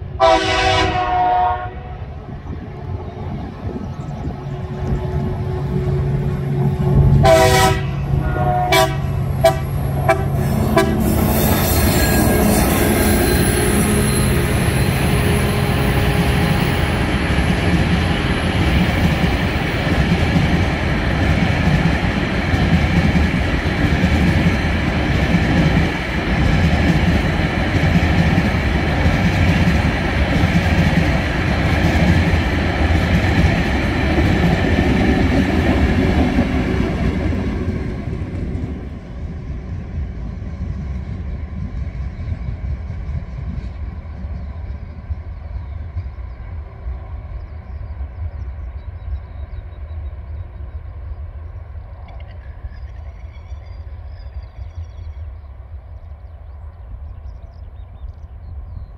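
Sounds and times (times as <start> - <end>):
locomotive horn blasts: 0.2 - 2.1, 5.6 - 16.3
diesel engine drone: 3.2 - 11.3
high wheel squeal: 9.7 - 18.6.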